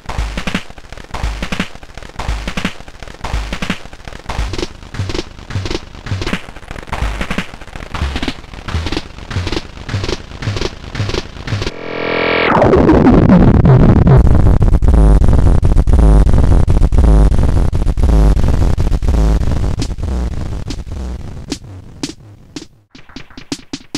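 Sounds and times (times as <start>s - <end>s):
electronic beat: 1.2s - 11.9s, 19.1s - 23.9s
delay repeats sliding down: 8.0s - 14.3s
glitchy tone: 8.0s - 15.4s.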